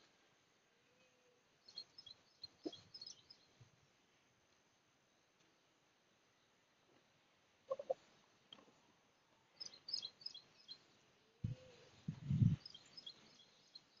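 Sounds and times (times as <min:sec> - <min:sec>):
small birds chirping: 0:01.0 - 0:03.6, 0:09.5 - 0:14.0.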